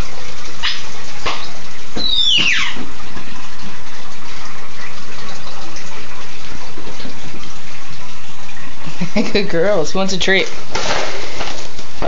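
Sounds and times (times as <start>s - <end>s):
aquarium filter running water: 0.0s - 12.0s
short high squeal: 2.0s - 2.8s.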